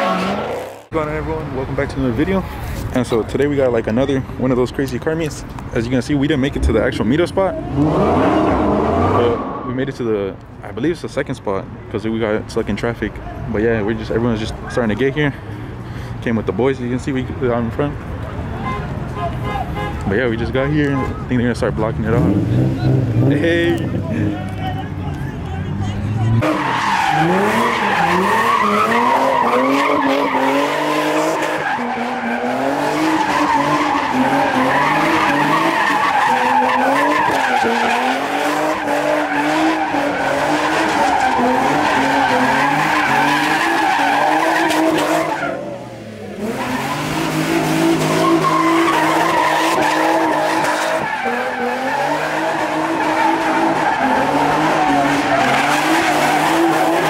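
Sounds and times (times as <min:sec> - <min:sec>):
tires squealing on asphalt: 0:00.0 - 0:00.9, 0:06.4 - 0:10.1, 0:22.0 - 0:57.0
car engine revving: 0:06.5 - 0:09.7, 0:21.8 - 0:24.8, 0:25.7 - 0:57.0.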